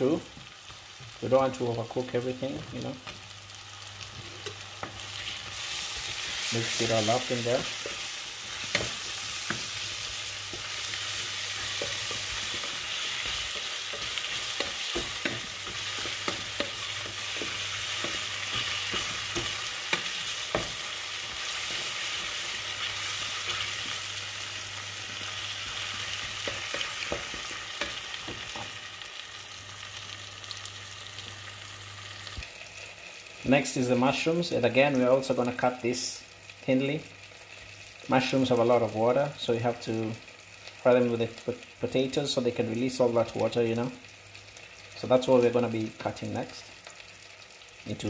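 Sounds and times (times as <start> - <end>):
potatoes sizzling in oil: 0.0 - 48.0
wooden spatula scraping pot: 4.2 - 24.1.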